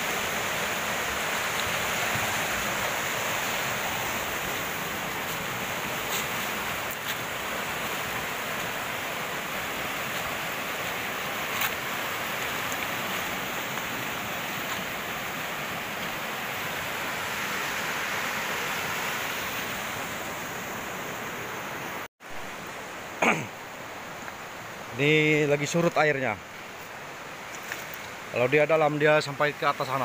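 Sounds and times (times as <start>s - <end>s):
river rapids rushing over rocks: 0.0s - 22.0s.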